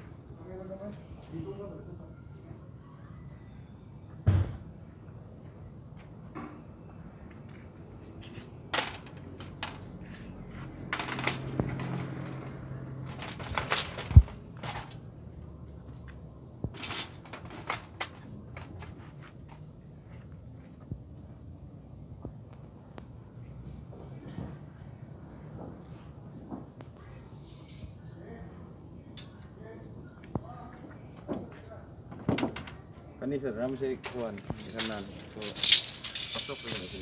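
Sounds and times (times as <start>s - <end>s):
plastic clattering against metal bars: 13.0s - 15.0s, 16.7s - 19.0s, 34.1s - 37.0s.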